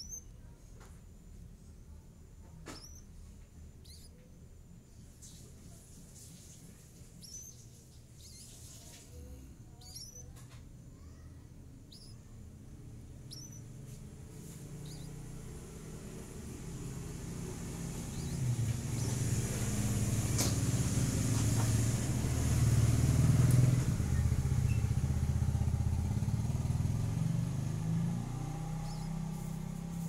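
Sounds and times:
faint high chirps: 0.0 - 21.4, 23.6 - 30.0
passing vehicle engine hum: 12.7 - 30.0.

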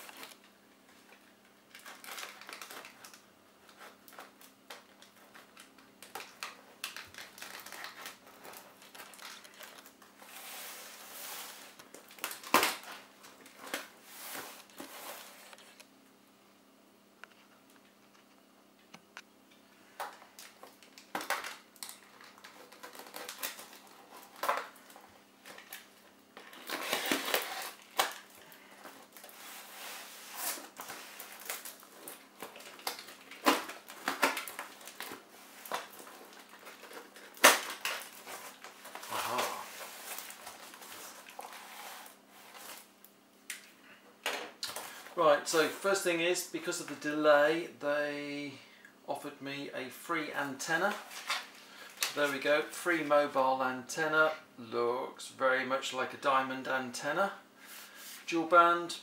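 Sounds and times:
plastic and cardboard rustling: 0.0 - 15.8, 19.9 - 42.9, 50.5 - 53.1.

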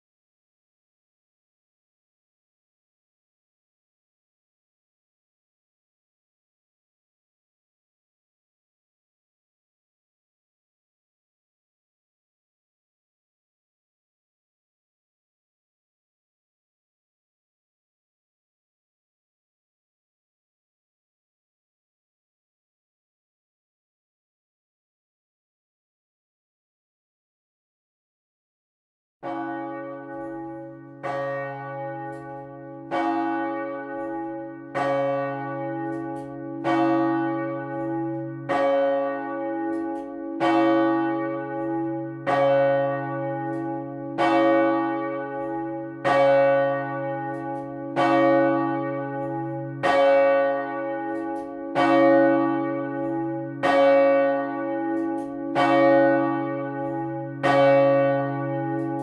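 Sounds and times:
church bell ringing: 29.2 - 59.0.

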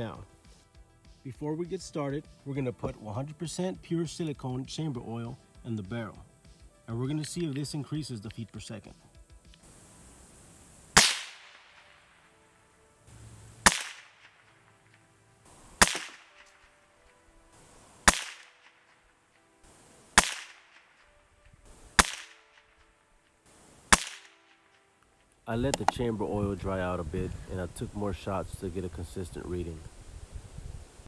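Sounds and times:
air rifle shots: 10.9 - 11.9, 13.6 - 14.4, 15.7 - 16.6, 18.0 - 18.8, 20.1 - 20.9, 22.0 - 22.4, 23.9 - 24.4.

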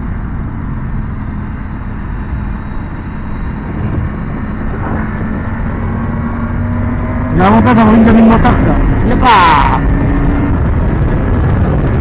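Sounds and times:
motorcycle engine running: 0.0 - 12.0
road noise: 0.0 - 12.0
wind noise: 0.0 - 12.0.

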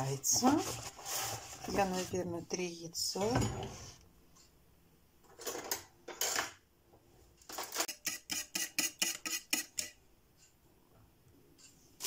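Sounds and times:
fork beating eggs in bowl: 7.7 - 10.0.

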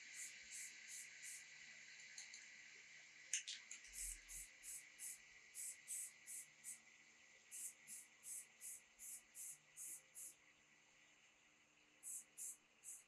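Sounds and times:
spray-paint can hissing in bursts: 0.0 - 1.5, 3.8 - 6.8, 7.5 - 10.4, 12.0 - 13.0.

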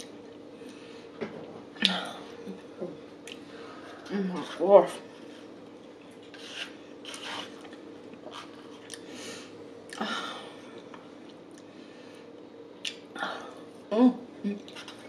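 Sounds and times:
fork scraping paper cup: 6.3 - 7.5.

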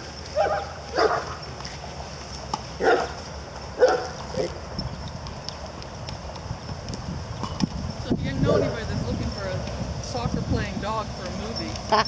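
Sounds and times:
dog barking: 0.4 - 1.4, 2.8 - 3.2, 3.8 - 4.6, 8.5 - 8.8.

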